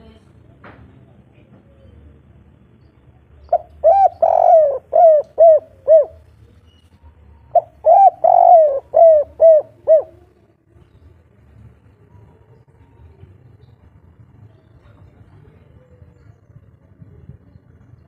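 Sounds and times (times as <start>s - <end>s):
dove cooing: 3.5s - 6.3s, 7.5s - 10.4s.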